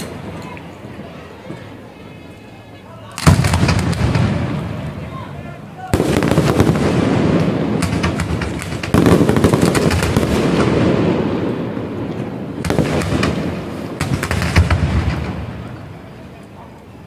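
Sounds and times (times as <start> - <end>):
fireworks bangs and crackling: 3.2 - 16.4.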